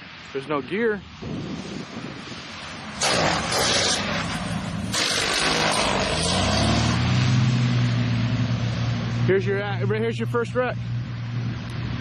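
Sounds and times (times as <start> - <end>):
rushing noise bursts: 0.0 - 9.2
low engine drone: 1.4 - 12.0.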